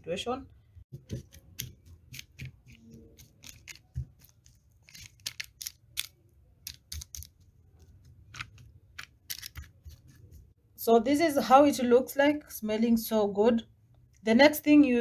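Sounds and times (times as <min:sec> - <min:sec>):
parchment paper crinkling: 0:01.0 - 0:10.4.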